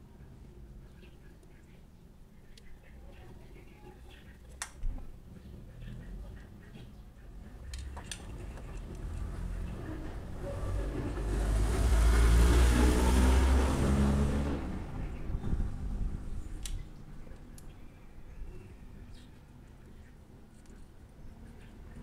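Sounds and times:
vehicle engine passing by: 8.2s - 16.5s.

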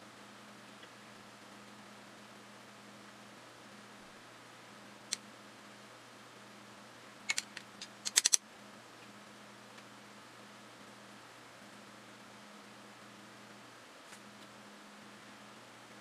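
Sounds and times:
faint steady hum: 0.0s - 16.0s
painting tools clicking: 7.3s - 8.4s.

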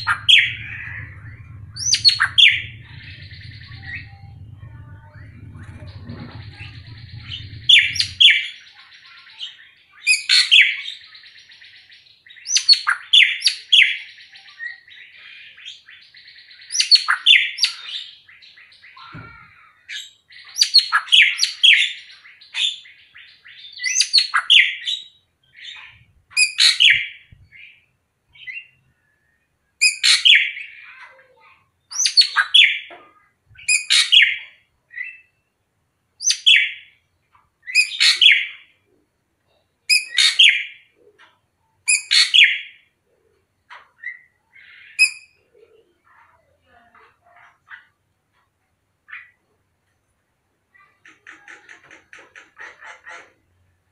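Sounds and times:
bird whistling and chattering: 0.0s - 8.6s, 39.9s - 40.7s, 41.9s - 42.7s, 44.0s - 45.3s
harsh rasping bird calls: 0.0s - 9.2s, 50.8s - 53.7s.

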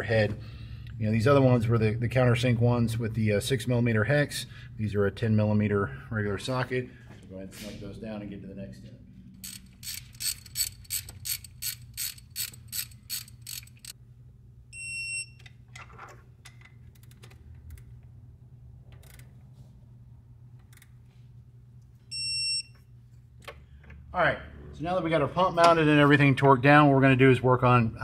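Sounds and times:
torque wrench ratchet clicking: 9.4s - 14.0s.

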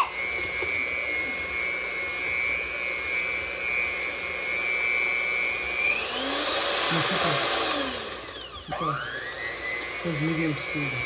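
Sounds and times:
electric hand mixer whine: 0.0s - 11.0s.

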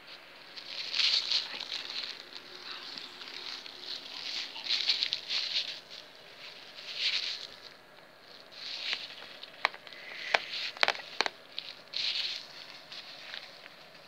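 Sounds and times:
kitten pawing scratchy rustles: 0.1s - 14.0s
claws tapping: 8.8s - 11.7s.

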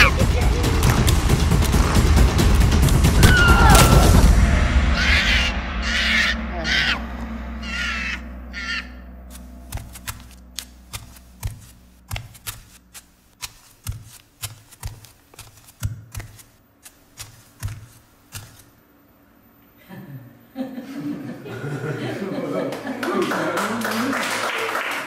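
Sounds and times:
low drone: 0.0s - 13.3s
crow-like caw: 4.8s - 9.0s.

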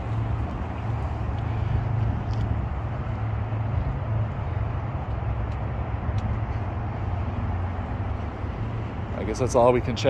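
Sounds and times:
constant low hum: 0.0s - 10.0s.

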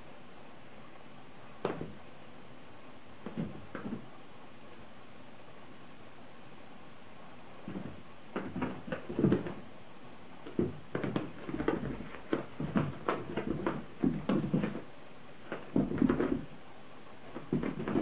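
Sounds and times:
cat paws thumping on carpet: 1.6s - 2.0s, 3.2s - 4.1s, 7.6s - 9.7s, 10.4s - 16.6s, 17.2s - 18.0s.

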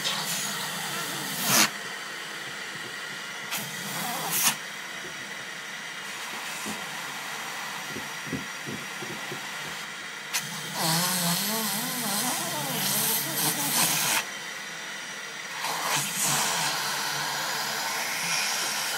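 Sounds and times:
vacuum cleaner running: 0.0s - 18.9s.

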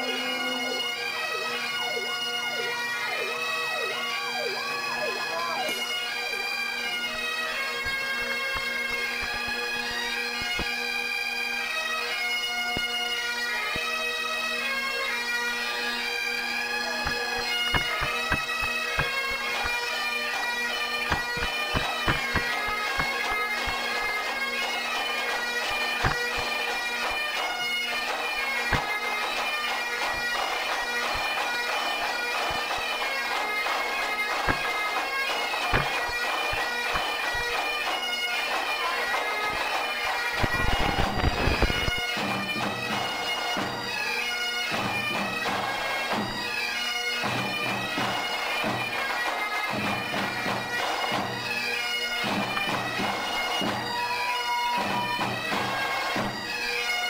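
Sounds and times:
bagpipes playing over a drone: 0.0s - 57.0s
drum strokes: 21.1s - 25.4s.

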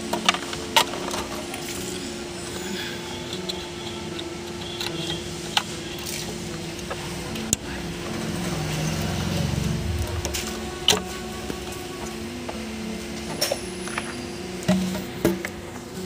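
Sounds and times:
steady hum: 0.0s - 16.0s
low rumble: 8.8s - 11.5s.

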